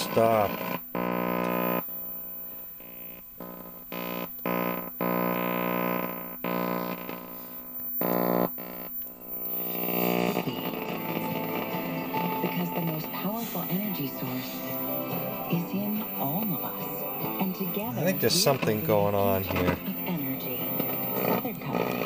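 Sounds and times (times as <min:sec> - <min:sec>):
buzzing drone from tv speaker: 0:00.0 - 0:22.0.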